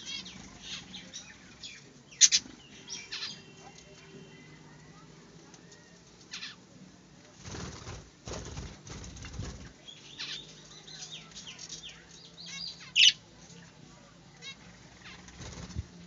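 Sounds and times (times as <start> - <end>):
budgerigars chirping: 0.0 - 3.5, 11.9 - 13.2
wing flapping: 7.4 - 9.8, 15.0 - 16.0.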